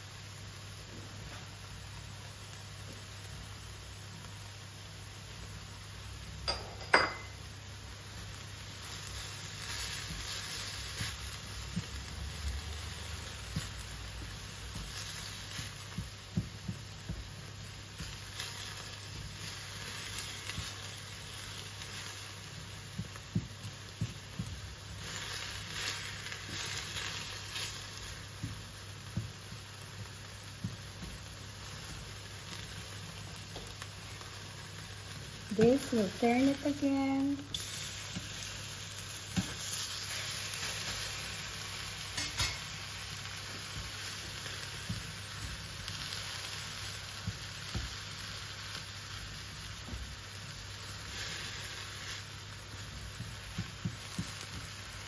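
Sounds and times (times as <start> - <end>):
food sizzling in a skillet: 0.0 - 55.0
spatula scraping and tapping pan: 18.0 - 20.9, 22.9 - 32.1, 39.3 - 41.0, 42.0 - 42.8, 52.8 - 54.9.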